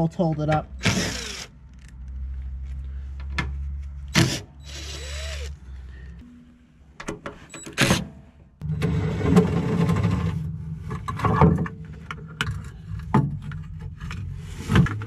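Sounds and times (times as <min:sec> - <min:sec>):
cordless impact driver running: 0:00.8 - 0:01.6, 0:04.2 - 0:05.6
metal clunks and scrapes: 0:07.0 - 0:15.0.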